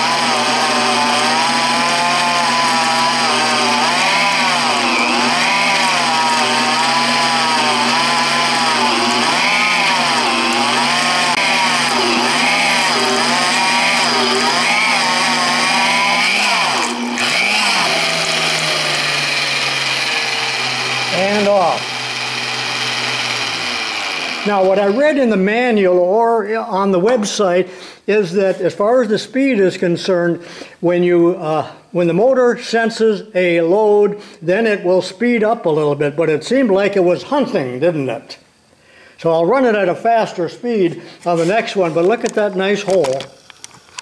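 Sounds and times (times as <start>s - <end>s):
drill press motor cutting steel: 0.0s - 25.0s.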